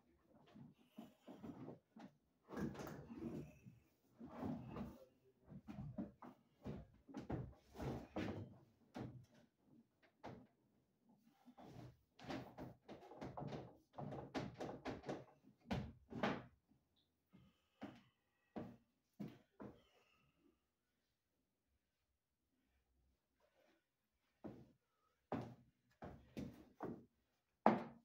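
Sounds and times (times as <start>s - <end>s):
plastic conduit knocking on wooden floor: 12.4s - 16.5s.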